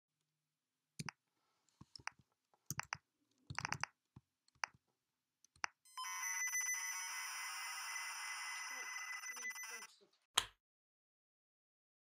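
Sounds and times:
computer keypress clicks: 2.0 - 3.9
electronic tape loading screech: 6.0 - 9.9.

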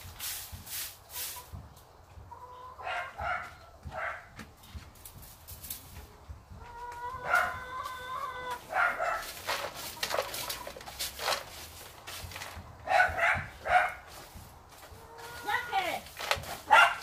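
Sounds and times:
straw broom sweeping dirt: 0.0 - 2.0, 4.6 - 6.2, 7.2 - 17.0
chickens clucking: 0.1 - 17.0.

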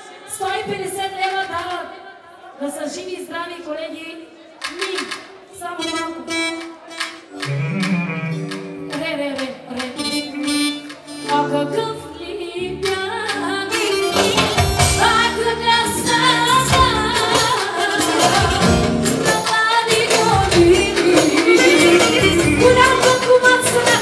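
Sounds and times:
band music with singing: 6.2 - 24.0
steady beat: 6.9 - 9.2.

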